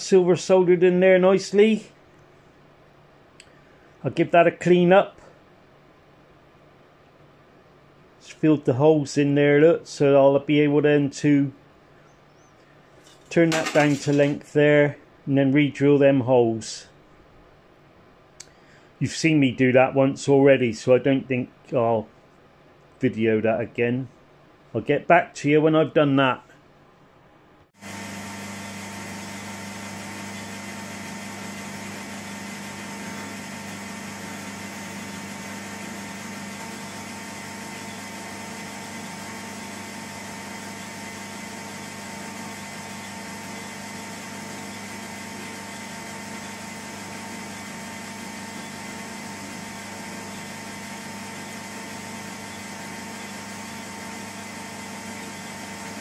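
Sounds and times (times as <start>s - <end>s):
lathe humming with high whine: 27.8s - 56.0s.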